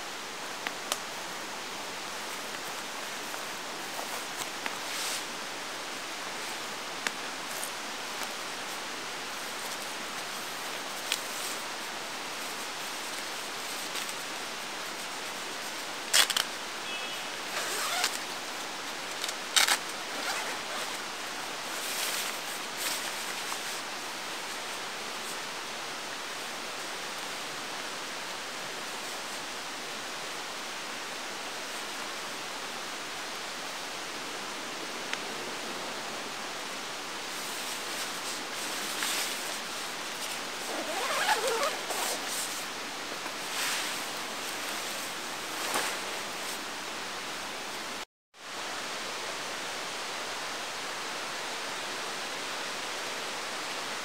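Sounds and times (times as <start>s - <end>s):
steady hiss: 0.0s - 54.0s
tent fabric rustling: 2.0s - 25.5s, 37.2s - 46.9s
tent pole clicks: 11.0s - 11.3s, 16.1s - 16.5s, 17.5s - 18.3s, 19.1s - 21.0s, 39.0s - 42.6s.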